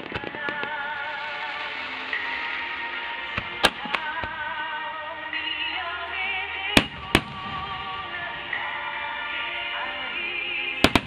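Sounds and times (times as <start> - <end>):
firework bangs: 0.0 - 4.7, 6.7 - 9.0, 10.8 - 11.0
music with wavering melody: 0.0 - 11.0.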